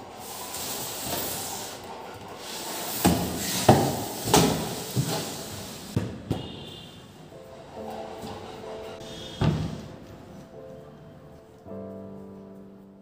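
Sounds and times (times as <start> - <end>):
cabinet scraping on tiled floor: 0.1 - 6.5.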